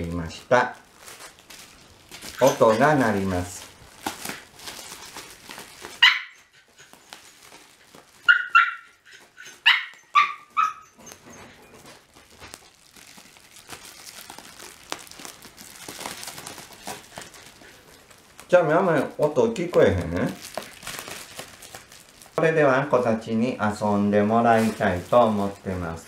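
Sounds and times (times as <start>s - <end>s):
bubble wrap rustling: 0.0s - 26.0s
dog yipping and whining: 5.9s - 7.3s, 8.1s - 12.0s.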